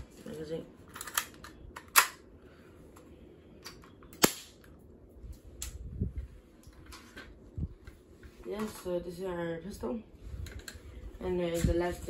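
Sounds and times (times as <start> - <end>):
airsoft pistol snaps: 3.6 - 4.7
light clicks and handling noise: 10.4 - 12.0.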